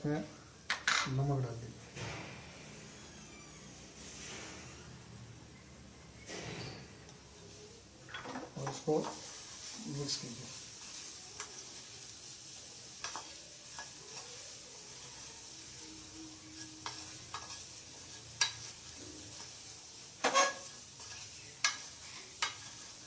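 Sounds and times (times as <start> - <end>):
vegetables sizzling softly: 7.0 - 23.0
spatula scraping a steel pan: 16.3 - 19.6, 20.2 - 23.0.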